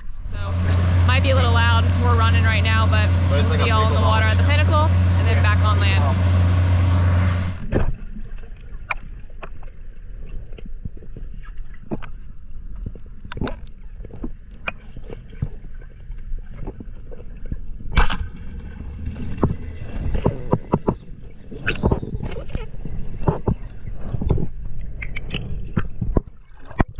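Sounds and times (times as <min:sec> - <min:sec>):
low muffled underwater rumble: 0:00.0 - 0:26.9
underwater clicks and pops: 0:07.6 - 0:15.8, 0:16.4 - 0:18.4, 0:19.3 - 0:21.0, 0:21.6 - 0:26.9.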